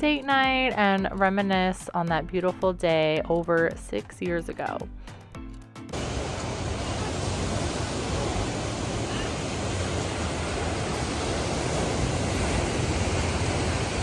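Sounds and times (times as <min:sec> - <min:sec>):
ocean surf breaking: 0:05.9 - 0:14.0
wind rumbling on microphone: 0:06.0 - 0:14.0.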